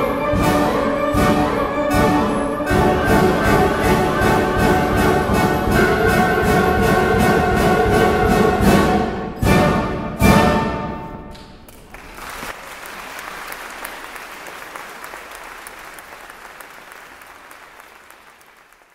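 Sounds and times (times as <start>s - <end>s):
wind band playing loud chords: 0.0s - 11.3s
audience applause: 11.7s - 18.9s.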